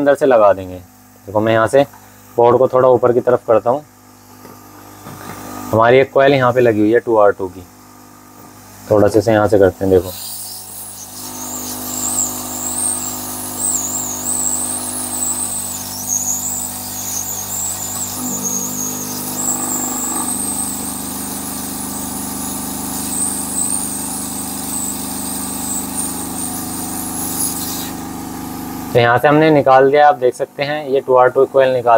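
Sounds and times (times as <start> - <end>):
hot-air blower hum and whistle: 9.9 - 29.9.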